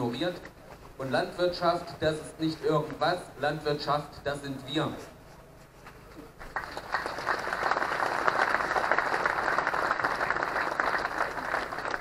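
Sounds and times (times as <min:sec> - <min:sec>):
crowd applauding: 0:06.5 - 0:12.0.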